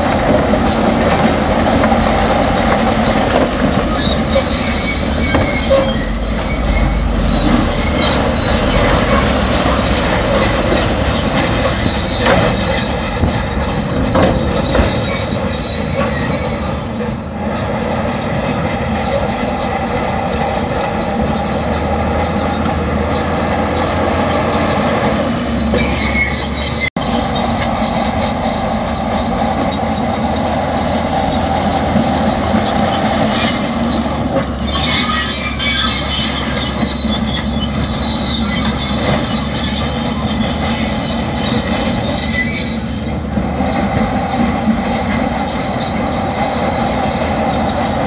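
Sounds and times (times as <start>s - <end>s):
diesel engine under load: 0.0s - 48.0s
steel tracks squealing and clanking: 0.0s - 48.0s.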